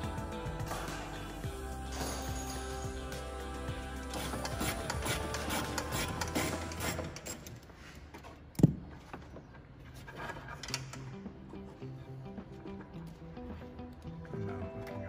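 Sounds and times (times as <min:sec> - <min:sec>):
background music: 0:00.0 - 0:07.5, 0:10.6 - 0:15.0.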